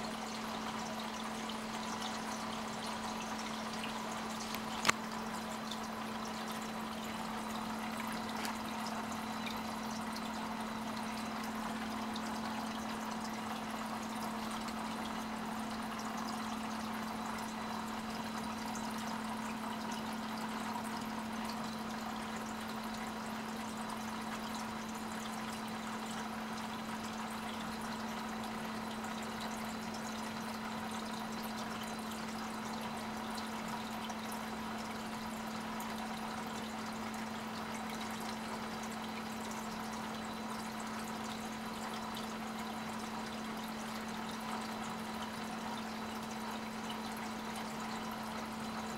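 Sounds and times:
filter hum: 0.0 - 15.2
water trickling into tank: 0.0 - 48.9.

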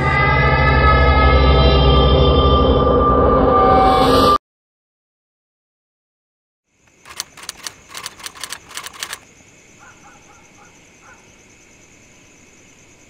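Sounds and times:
insect chirping calls: 6.7 - 13.0
night insects droning: 6.7 - 13.0.

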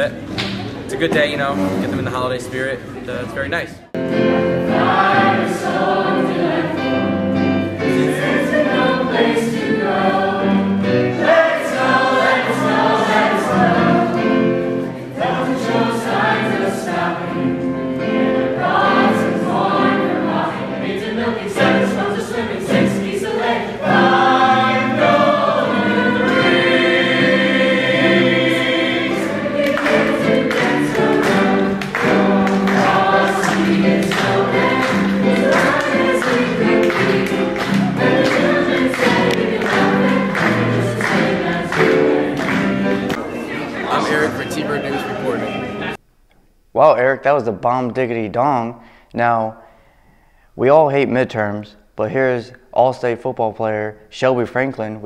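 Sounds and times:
choir singing a carol: 3.9 - 46.0.

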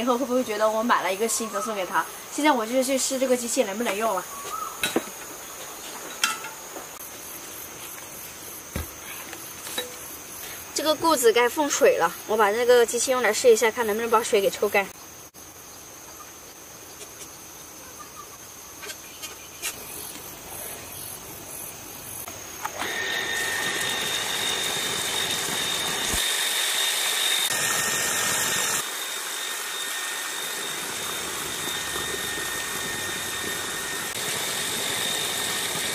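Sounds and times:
water pump whining: 22.6 - 35.9.

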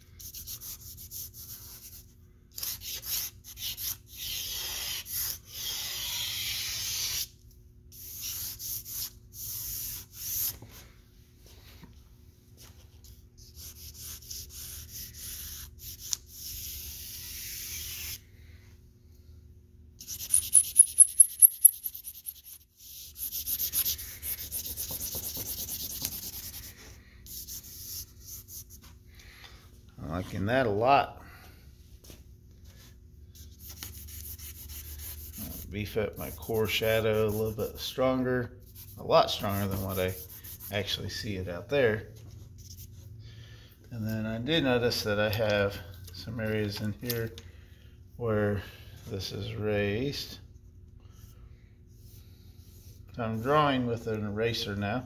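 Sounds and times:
charcoal scratching on paper: 2.6 - 7.3, 8.0 - 10.5, 13.4 - 18.2, 20.0 - 28.8, 33.4 - 37.7, 38.6 - 40.8.

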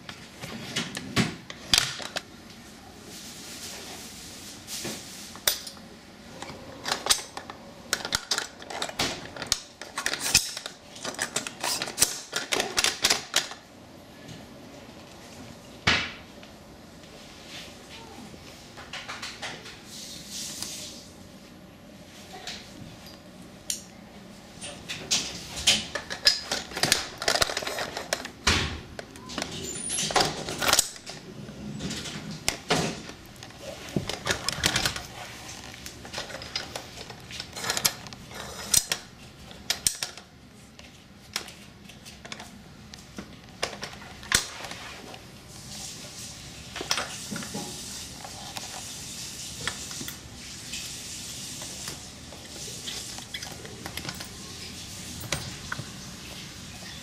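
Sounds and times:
plastic and metal parts clattering: 0.4 - 2.3, 6.8 - 13.6, 24.6 - 40.3, 43.4 - 44.8, 52.6 - 54.4.

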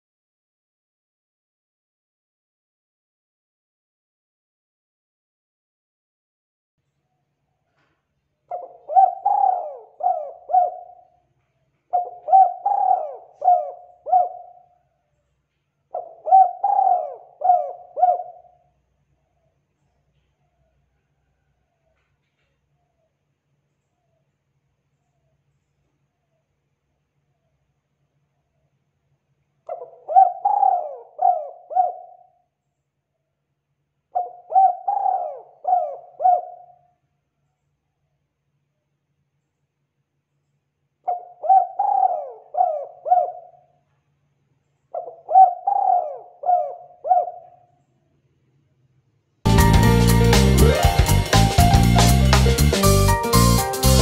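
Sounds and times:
dove cooing: 8.5 - 11.2, 11.9 - 14.8, 15.9 - 18.6, 29.7 - 32.4, 34.2 - 36.8, 41.1 - 43.8, 44.9 - 47.7.

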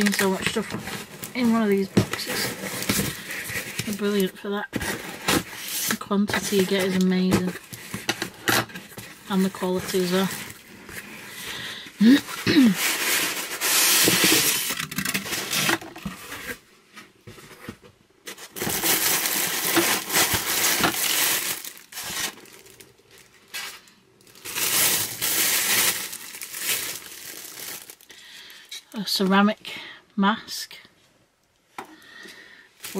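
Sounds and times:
paper crinkling and tearing: 12.0 - 16.6, 18.4 - 28.1.

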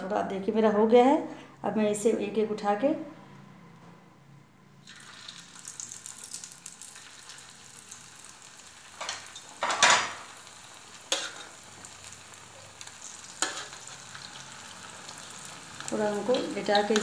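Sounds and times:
food sizzling in hot oil: 4.8 - 17.0.

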